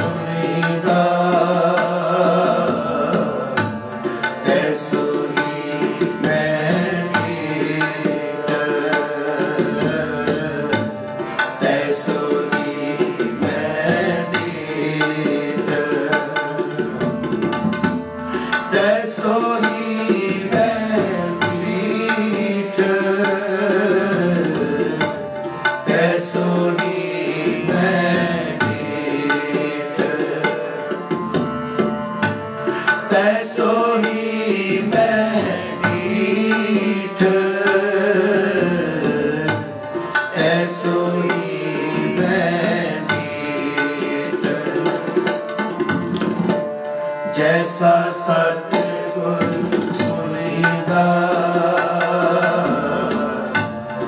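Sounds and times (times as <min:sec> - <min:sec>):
harmonium chords: 0:00.0 - 0:54.0
tabla rhythm: 0:00.0 - 0:54.0
voices singing a gliding melody: 0:04.2 - 0:10.8, 0:11.5 - 0:17.0, 0:25.8 - 0:31.3, 0:32.7 - 0:45.3, 0:47.2 - 0:54.0.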